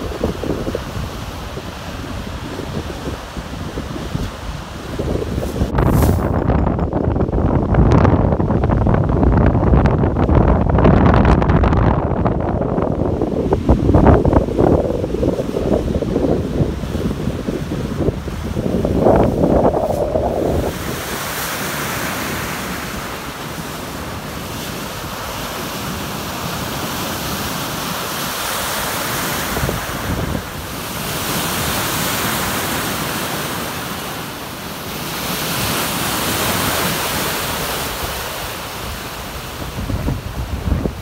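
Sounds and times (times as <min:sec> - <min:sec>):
waves breaking and rushing: 0:00.0 - 0:41.0
wind noise on microphone: 0:00.0 - 0:41.0.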